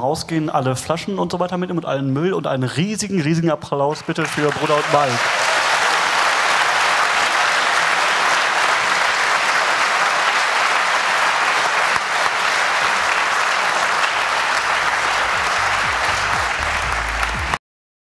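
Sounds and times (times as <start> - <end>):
audience applauding: 3.9 - 17.6.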